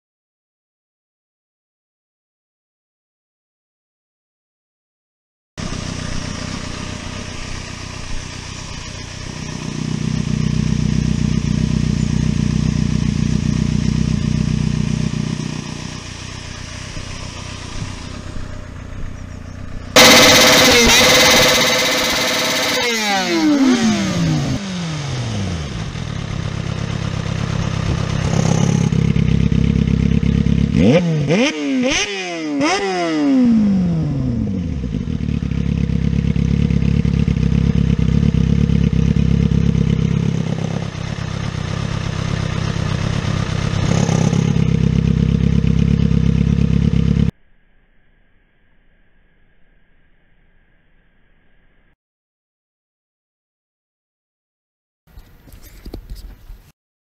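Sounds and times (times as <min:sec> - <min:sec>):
motorcycle engine revving and idling: 0:05.6 - 0:47.4.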